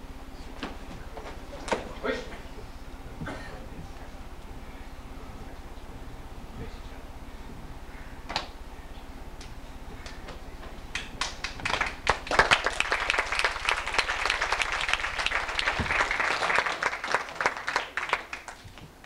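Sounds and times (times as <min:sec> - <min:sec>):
small group clapping: 0:08.3 - 0:08.6, 0:09.4 - 0:19.0.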